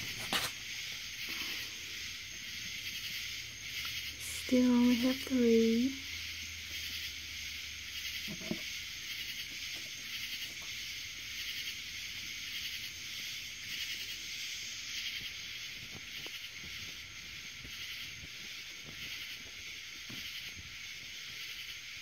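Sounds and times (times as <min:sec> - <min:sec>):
insects buzzing: 0:00.0 - 0:22.0.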